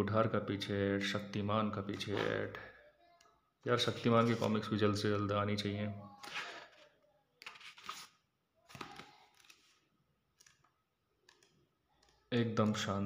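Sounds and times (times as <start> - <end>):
comic book pages turning: 6.2 - 10.6.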